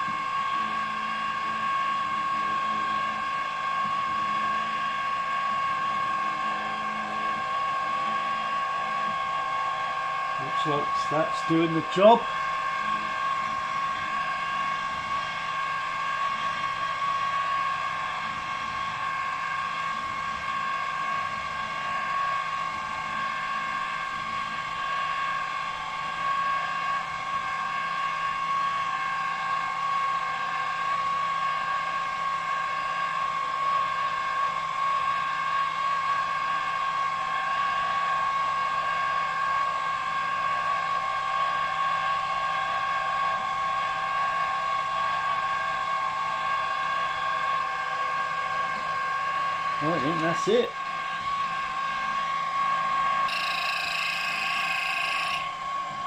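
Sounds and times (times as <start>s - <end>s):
milling machine whining: 0.0s - 27.9s, 49.6s - 56.0s.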